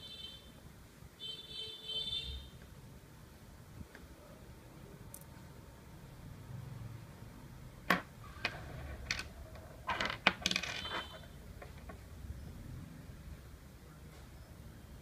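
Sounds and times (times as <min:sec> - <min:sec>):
brass parts clinking on wooden table: 0:07.9 - 0:11.9.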